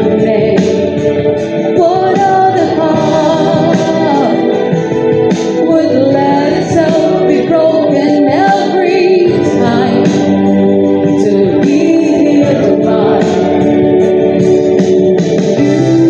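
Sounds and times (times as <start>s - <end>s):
woman singing into a microphone: 0.0s - 14.1s, 15.6s - 16.0s.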